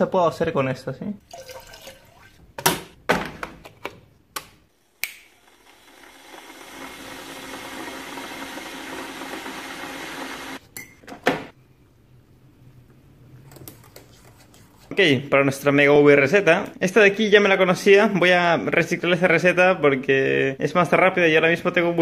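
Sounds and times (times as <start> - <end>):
water poured into mug: 1.2 - 2.4.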